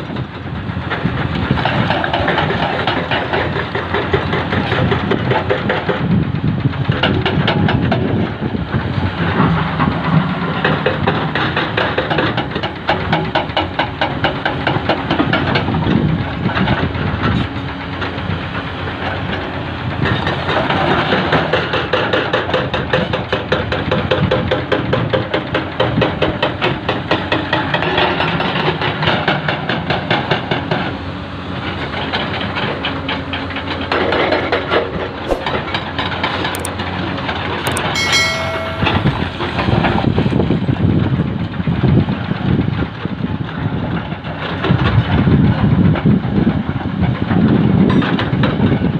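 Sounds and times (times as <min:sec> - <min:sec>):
excavator diesel engines running: 0:00.0 - 0:48.9.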